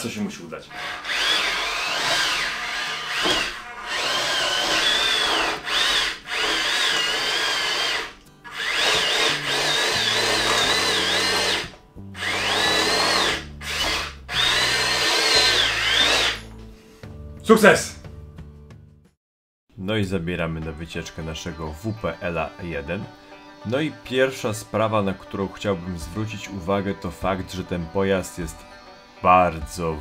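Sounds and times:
small electric motors whining: 0:00.8 - 0:16.5.

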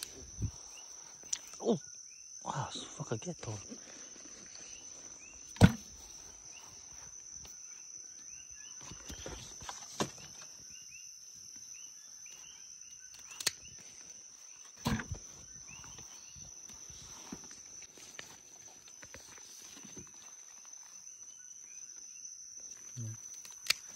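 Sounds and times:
insect chirps: 0:00.0 - 0:23.9
night insects droning: 0:00.0 - 0:23.9
handling thumps: 0:05.5 - 0:06.0
fruit dropped into plastic tub: 0:05.6 - 0:06.0.

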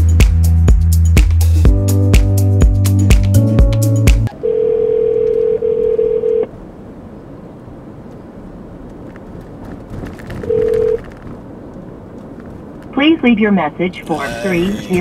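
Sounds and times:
electronic music: 0:00.0 - 0:04.3, 0:14.1 - 0:15.0
telephone ringback tone: 0:04.3 - 0:06.5, 0:10.4 - 0:11.0.

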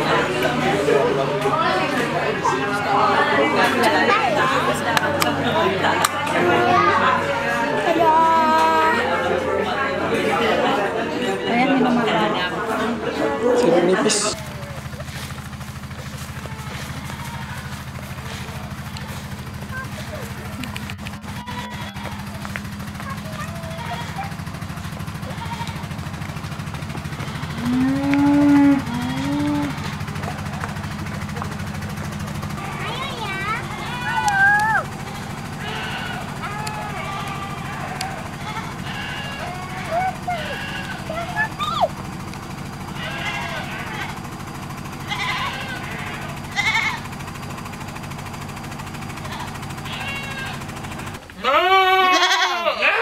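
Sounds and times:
steady low hum: 0:00.0 - 0:52.9
goats bleating: 0:16.0 - 0:26.3, 0:26.9 - 0:30.8, 0:33.5 - 0:41.9, 0:42.8 - 0:44.2, 0:45.0 - 0:47.0, 0:49.1 - 0:50.7, 0:51.3 - 0:53.0
cow mooing: 0:27.2 - 0:29.9, 0:36.9 - 0:41.1.

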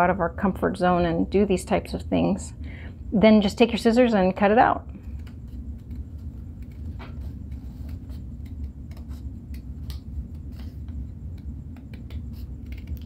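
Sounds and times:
steady low hum: 0:00.0 - 0:13.0
scissors snipping paper: 0:11.3 - 0:13.0.

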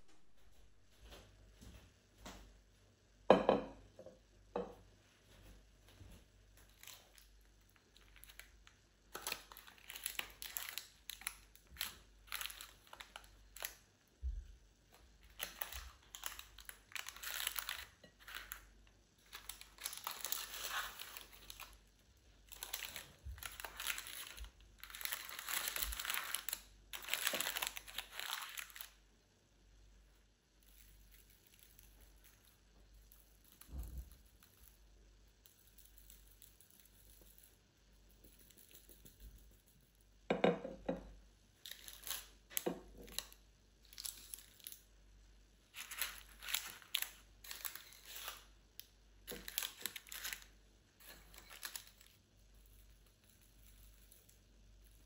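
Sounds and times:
material crinkling and rustling: 0:05.3 - 0:29.0, 0:45.7 - 0:55.0.

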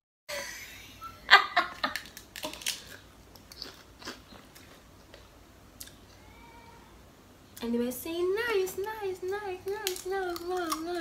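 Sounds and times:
crisp crunching while chewing: 0:01.8 - 0:05.2, 0:09.7 - 0:11.0.

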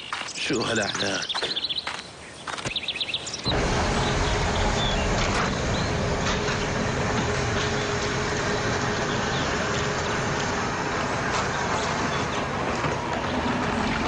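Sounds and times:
tyres rolling on gravel: 0:03.4 - 0:14.0
car engine hum: 0:03.5 - 0:14.0.

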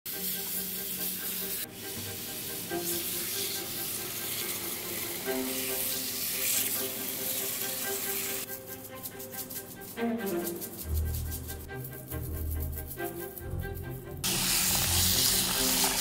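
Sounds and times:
bowed string music: 0:00.1 - 0:16.0
tap water running into a bowl: 0:14.3 - 0:16.0.

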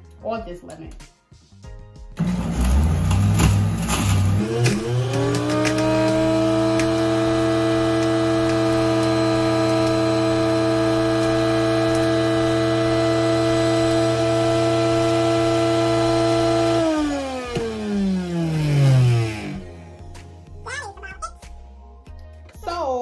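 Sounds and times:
juicer motor whine: 0:02.2 - 0:20.0.

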